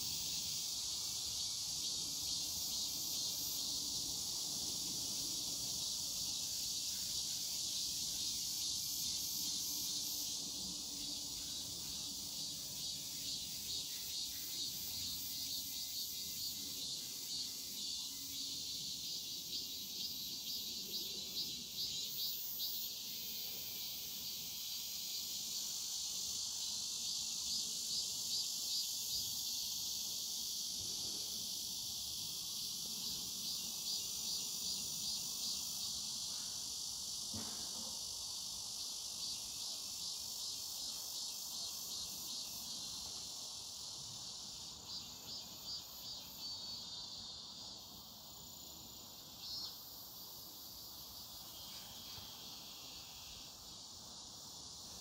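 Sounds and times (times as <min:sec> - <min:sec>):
cicadas chorus droning: 0:00.0 - 0:55.0
fast pulsing cicada call: 0:00.0 - 0:55.0.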